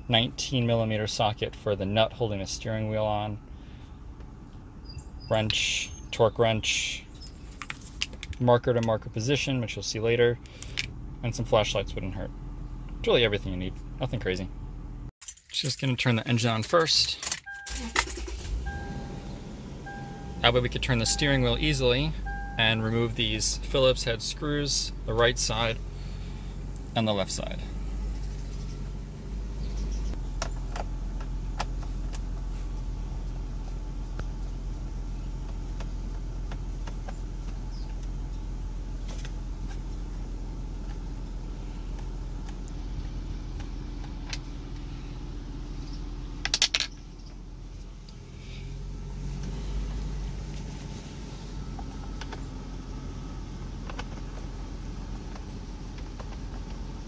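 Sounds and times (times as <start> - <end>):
car engine idling: 0.0 - 15.1, 17.5 - 57.0.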